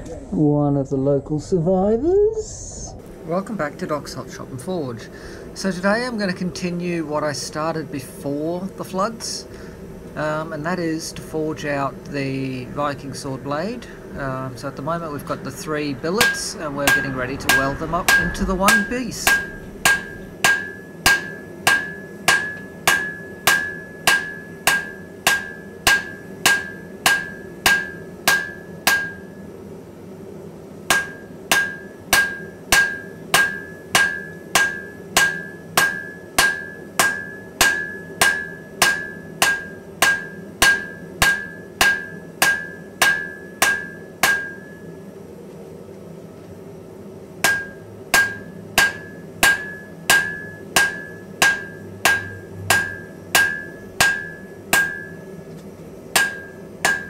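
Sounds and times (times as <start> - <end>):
steady low hum: 0.0 - 57.0
anvil ringing: 16.2 - 29.3, 30.9 - 44.8, 47.4 - 55.2, 56.2 - 57.0
hammer striking steel on anvil: 16.2 - 29.3, 30.9 - 44.9, 47.4 - 55.3, 56.1 - 57.0.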